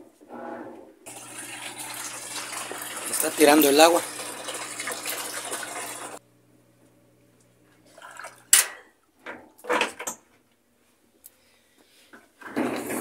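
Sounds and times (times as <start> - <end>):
water draining through pump: 1.1 - 6.2, 7.8 - 8.7
washing machine hum: 1.1 - 10.0.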